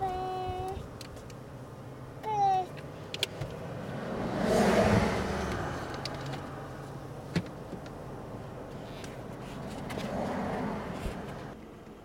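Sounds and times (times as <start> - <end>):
car passing by: 3.5 - 6.8, 9.3 - 11.6.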